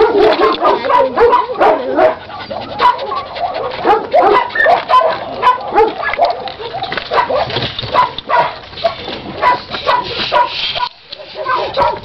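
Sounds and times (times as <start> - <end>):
puppies whining and squeaking: 2.1 - 3.8, 8.8 - 11.8.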